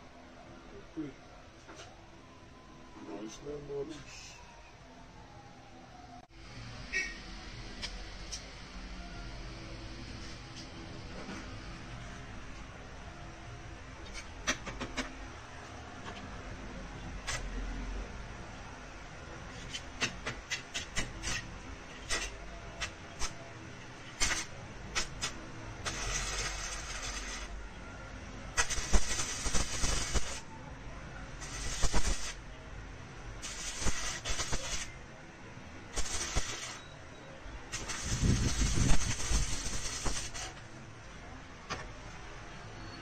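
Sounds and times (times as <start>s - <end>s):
crackling welding arc: 17.2s - 17.6s, 19.5s - 27.6s, 28.5s - 30.5s, 31.3s - 32.5s, 33.4s - 35.1s, 35.9s - 36.8s, 37.7s - 40.7s.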